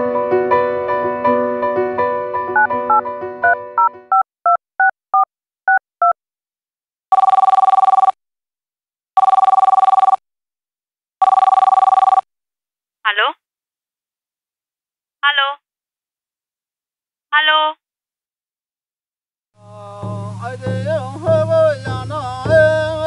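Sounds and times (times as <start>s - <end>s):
piano music: 0.0s - 4.1s
phone keypad tones: 7.1s - 8.2s, 9.2s - 10.2s, 11.2s - 12.2s
warbling electronic phone ring: 7.1s - 8.2s, 9.2s - 10.2s, 11.2s - 12.3s.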